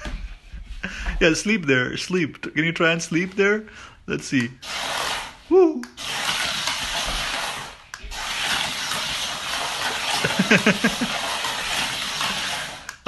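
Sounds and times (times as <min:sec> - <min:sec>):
toy car rushing through tube: 0:04.6 - 0:13.0.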